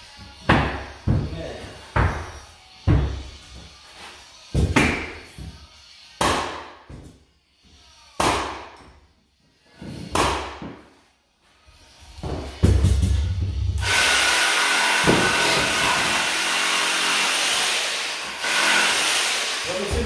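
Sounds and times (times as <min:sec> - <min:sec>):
pneumatic nailer bangs: 0:13.8 - 0:16.4.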